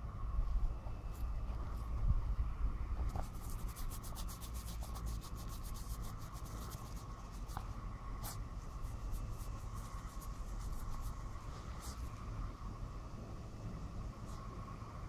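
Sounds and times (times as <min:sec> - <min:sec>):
puppy paws scratching in sand: 0:03.0 - 0:12.2.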